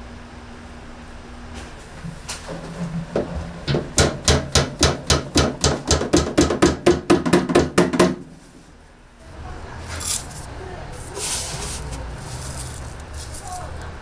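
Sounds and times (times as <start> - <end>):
rapid knocks: 3.1 - 8.2.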